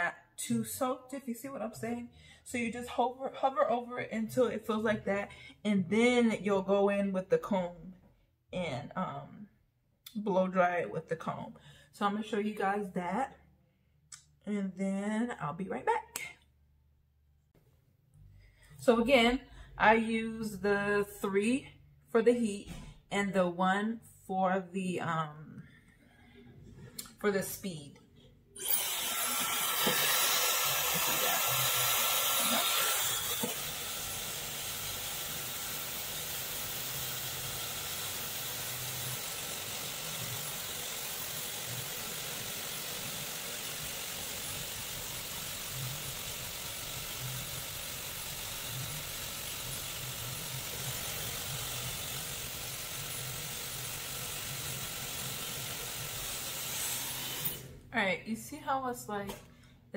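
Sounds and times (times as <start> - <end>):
hair dryer blowing: 28.6 - 57.7.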